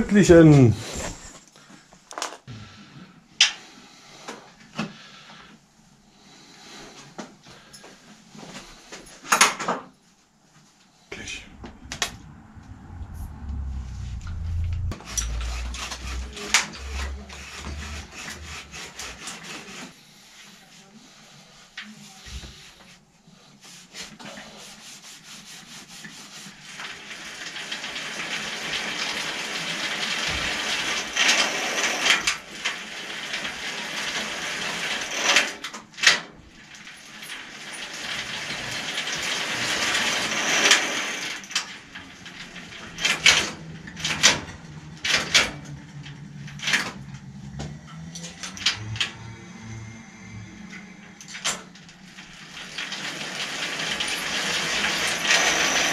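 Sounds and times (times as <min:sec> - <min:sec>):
rag rubbing metal tubing: 0:14.8 - 0:19.9.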